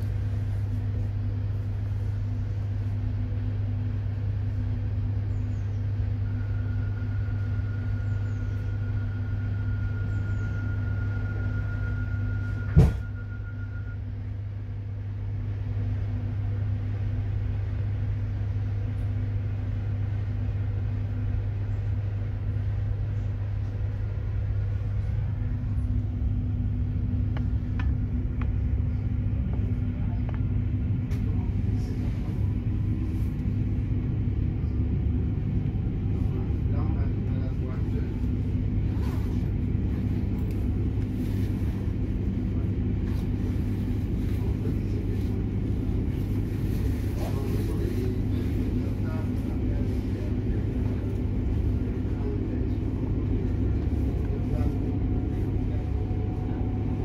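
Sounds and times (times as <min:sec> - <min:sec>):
train cabin rumble and hum: 0:00.0 - 0:57.0.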